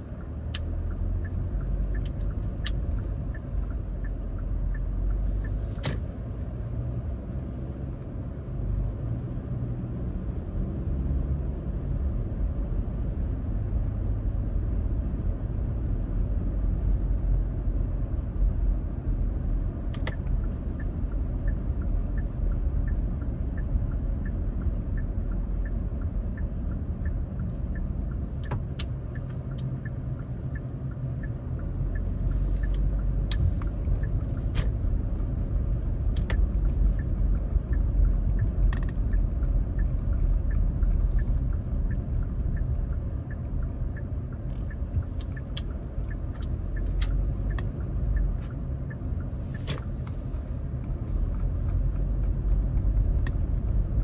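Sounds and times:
light regular ticking: 0:00.0 - 0:05.6, 0:19.8 - 0:54.0
car tyres and engine rumbling: 0:00.0 - 0:54.0.

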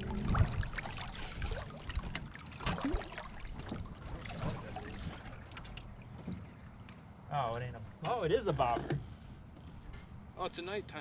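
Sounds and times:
fishing gear clattering in metal boat: 0:02.0 - 0:06.5, 0:08.0 - 0:09.1.

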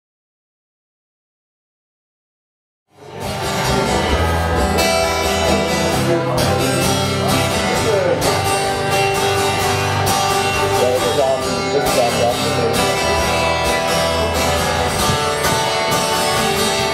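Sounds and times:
strummed acoustic guitar: 0:02.9 - 0:16.9
bass line: 0:03.0 - 0:16.9
steady drum beat: 0:03.2 - 0:16.9.

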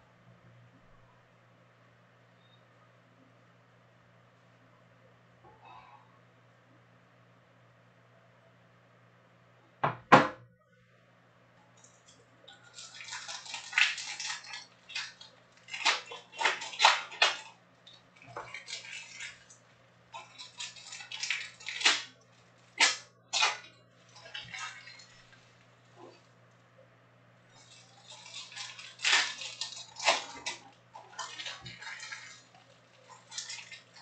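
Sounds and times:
foil wrappers tearing and crinkling: 0:12.5 - 0:25.7, 0:27.5 - 0:34.0.

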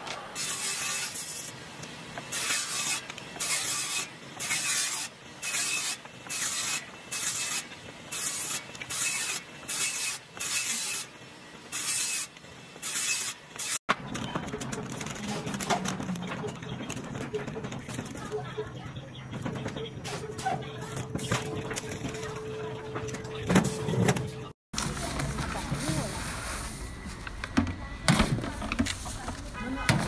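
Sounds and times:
table saw cutting wood: 0:02.3 - 0:11.1.

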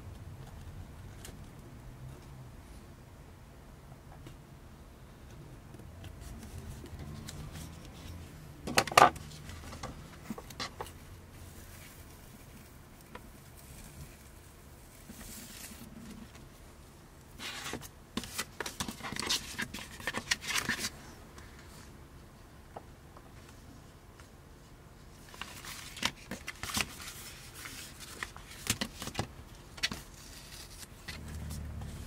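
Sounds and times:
vinyl sheet rustling: 0:06.0 - 0:16.6, 0:17.2 - 0:22.0, 0:24.6 - 0:32.0.

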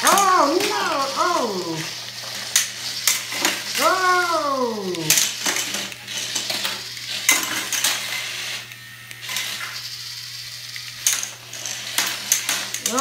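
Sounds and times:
toy robots clattering: 0:00.0 - 0:13.0.

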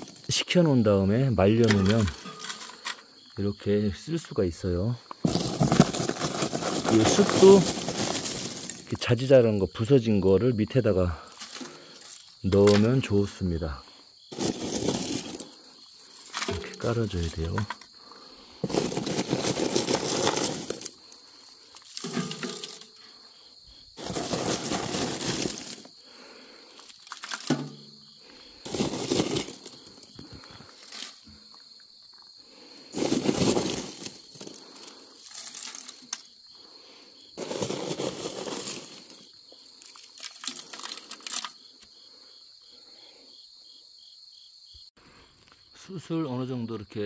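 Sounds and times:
insects chirping: 0:00.0 - 0:47.0
charcoal clattering into stove: 0:05.2 - 0:08.9, 0:21.8 - 0:22.9, 0:27.1 - 0:27.9
pine needles rustling: 0:05.2 - 0:09.1, 0:14.3 - 0:17.5, 0:18.6 - 0:23.3, 0:24.0 - 0:27.5, 0:28.3 - 0:31.3, 0:32.9 - 0:36.3, 0:37.4 - 0:41.6.

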